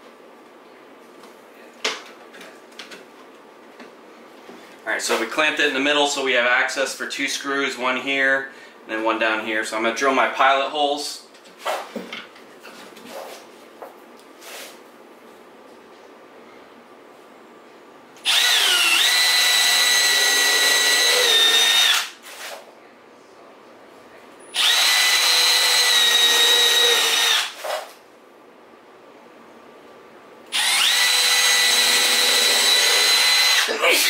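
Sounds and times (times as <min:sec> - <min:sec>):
cordless drill boring into wood: 0:18.2 - 0:22.1, 0:24.6 - 0:27.6, 0:30.5 - 0:33.7.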